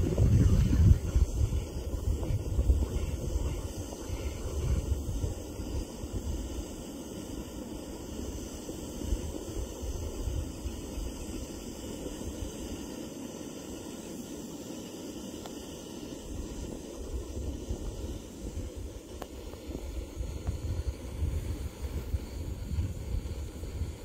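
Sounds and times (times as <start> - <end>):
wind buffeting microphone: 0.0 - 6.9, 16.4 - 24.0
steady outdoor hiss: 0.0 - 24.0.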